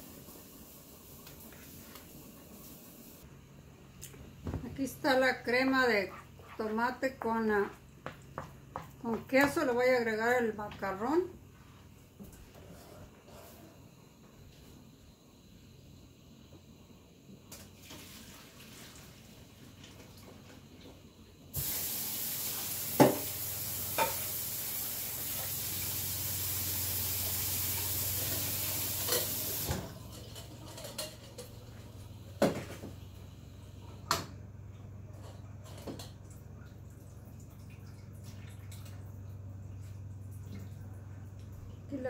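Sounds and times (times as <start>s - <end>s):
tap water running: 17.5s - 42.0s.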